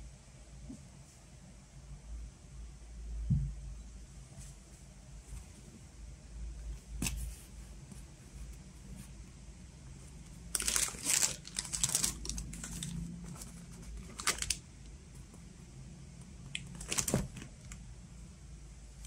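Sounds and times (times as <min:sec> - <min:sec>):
cardboard and tape crinkling: 0:10.5 - 0:14.6, 0:16.7 - 0:17.8.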